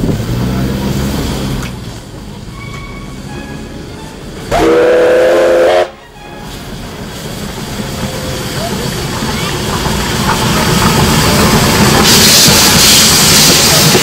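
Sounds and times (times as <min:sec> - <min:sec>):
running train noise: 0:00.0 - 0:14.0
steam locomotive whistle blast: 0:04.5 - 0:06.6.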